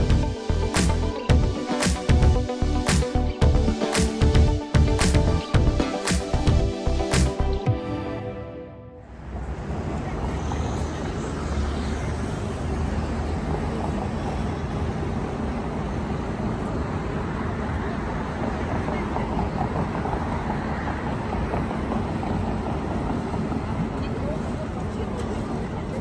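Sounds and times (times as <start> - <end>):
road traffic: 0.0 - 26.0
indistinct voices of pedestrians: 9.1 - 26.0.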